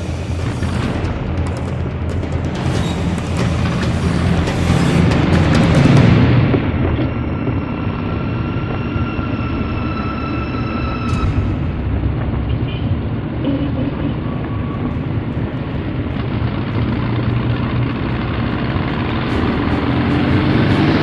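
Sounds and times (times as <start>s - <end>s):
motorcycle engine running: 13.4s - 21.0s.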